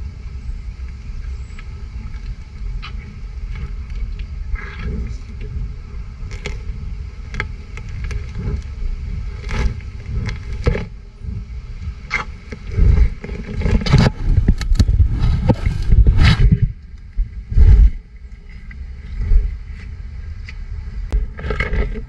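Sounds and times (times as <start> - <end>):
steady low rumble: 0.0 - 22.0
rhinoceros sniffing and huffing: 4.5 - 5.4.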